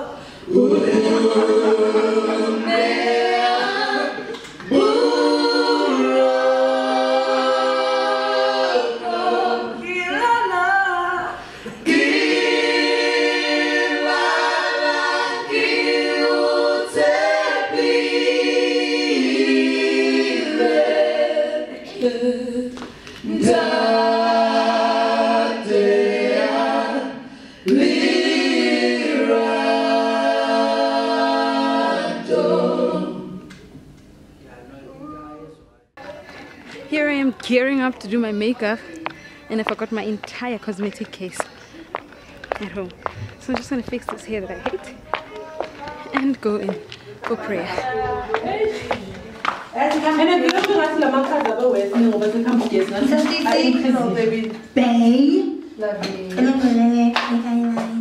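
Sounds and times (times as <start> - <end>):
group singing a cappella: 0.0 - 33.9, 46.2 - 58.0.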